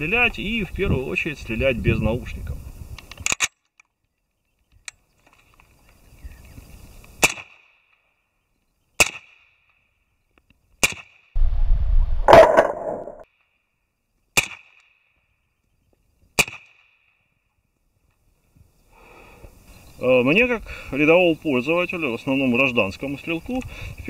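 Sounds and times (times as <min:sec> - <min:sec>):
low rumble: 0:11.4 - 0:13.2
suppressed rifle shots: 0:12.2 - 0:13.2.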